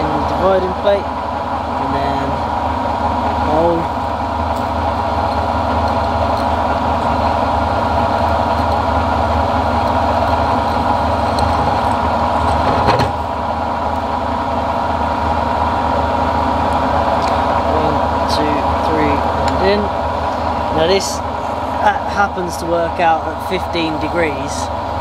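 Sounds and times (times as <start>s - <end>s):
milling machine drilling metal: 3.2s - 14.1s.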